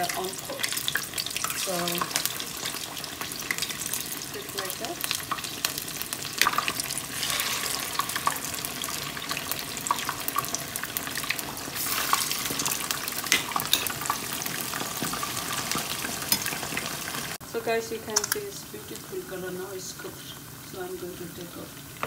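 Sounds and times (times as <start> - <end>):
spoon turning food in oil: 0.0 - 17.2, 18.0 - 18.5
fish deep-frying in hot oil: 0.0 - 22.0.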